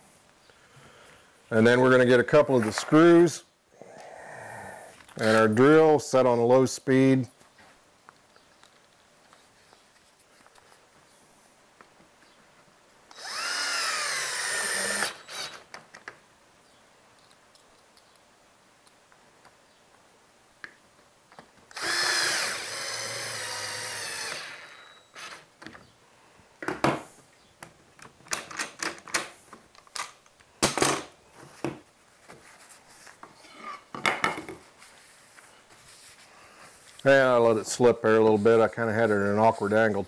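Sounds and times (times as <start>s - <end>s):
cordless drill driving screws: 13.1s - 15.7s, 21.7s - 25.5s.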